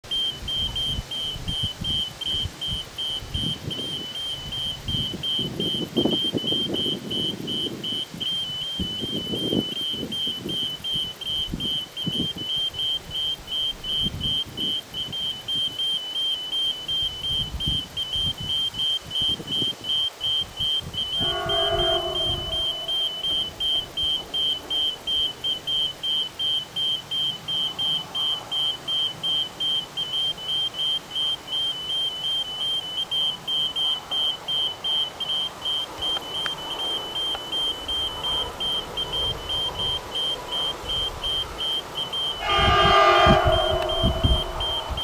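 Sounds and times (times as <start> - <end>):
level crossing signal beeping: 0.0 - 45.0
low rumbling: 42.6 - 45.0.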